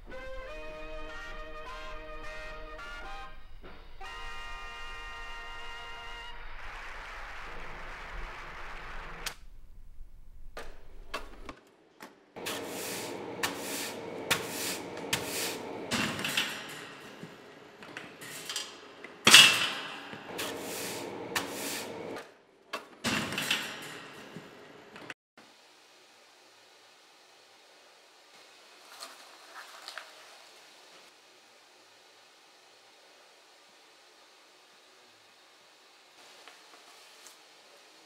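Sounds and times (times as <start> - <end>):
loud metal clank: 19.3 - 20.5.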